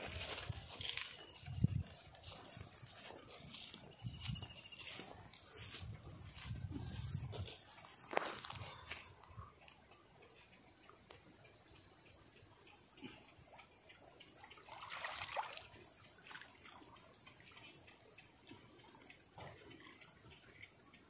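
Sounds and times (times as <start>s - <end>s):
insects droning: 0.0s - 21.0s
water splashing and dripping: 14.2s - 17.6s.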